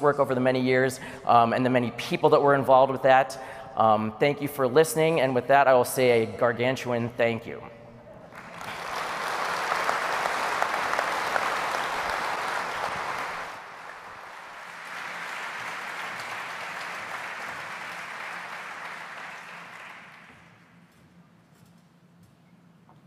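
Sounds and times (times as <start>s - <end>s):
audience applauding: 8.3s - 20.6s.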